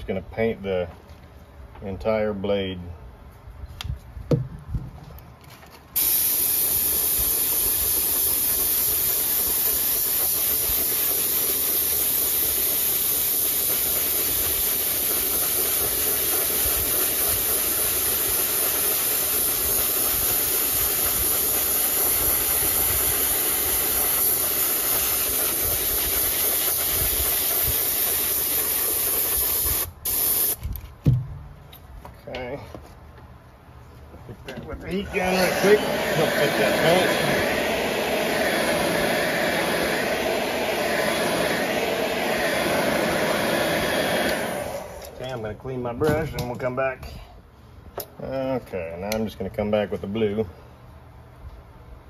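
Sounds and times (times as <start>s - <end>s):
airbrush spraying hiss: 6.0s - 30.6s, 35.1s - 45.2s.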